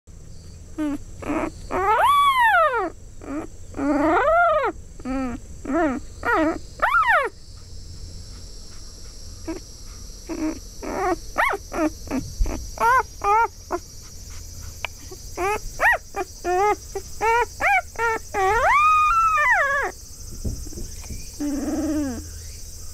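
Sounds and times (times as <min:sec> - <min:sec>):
puppy crying: 0:00.8 - 0:07.4, 0:10.3 - 0:20.0, 0:21.3 - 0:22.2.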